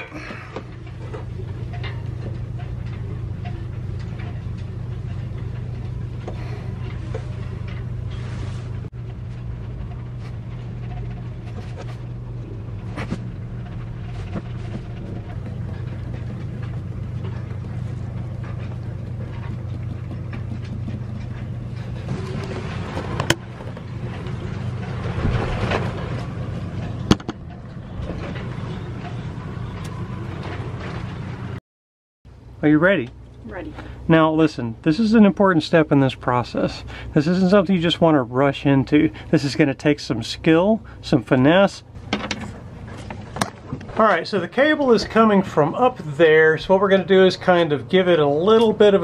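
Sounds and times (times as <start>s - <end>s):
handling noise: 0.0s - 31.6s
low machine hum: 0.0s - 31.6s, 32.3s - 49.0s.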